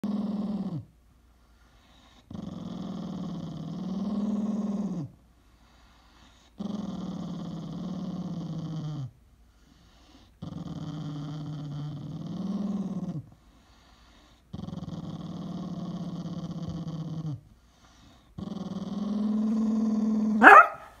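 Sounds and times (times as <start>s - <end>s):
puppy growling: 0.0s - 0.9s, 2.2s - 5.2s, 6.6s - 9.2s, 10.4s - 13.4s, 14.5s - 20.9s.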